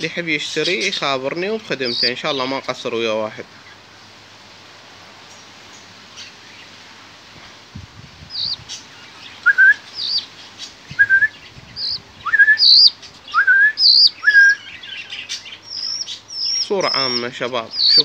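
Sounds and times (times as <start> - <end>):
chicks begging chirps: 0.5 - 4.0, 8.1 - 18.0.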